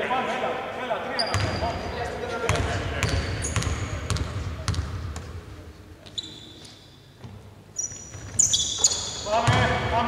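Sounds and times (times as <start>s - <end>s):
sneaker squeaks: 1.2s - 1.9s, 2.5s - 4.8s, 6.0s - 9.7s.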